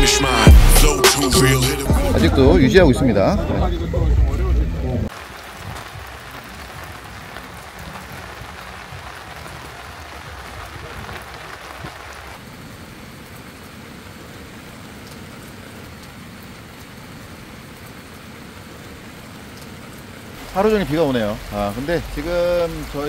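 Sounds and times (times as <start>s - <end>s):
rain on tarp and tents: 5.0s - 23.0s.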